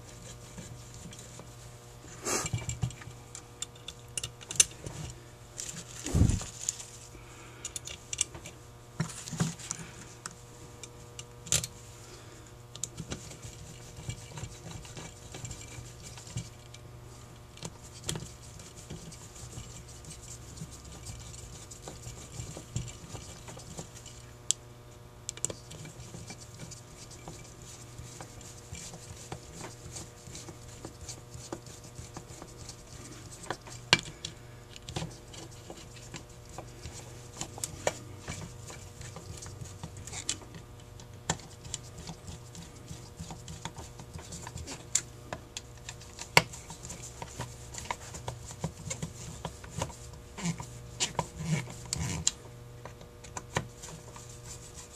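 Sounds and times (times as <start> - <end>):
plastic bag rustling: 5.6 - 7.1.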